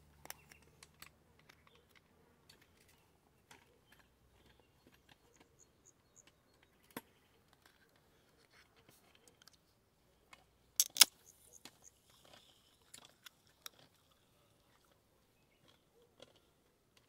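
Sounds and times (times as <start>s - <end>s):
tools and parts clicking: 0.1s - 8.0s, 10.3s - 14.0s
sharp click: 10.8s - 11.3s.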